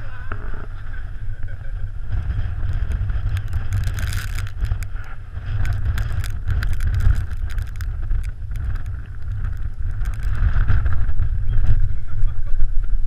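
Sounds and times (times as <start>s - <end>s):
wind buffeting microphone: 0.0s - 13.0s
sharp clicks: 2.8s - 10.6s.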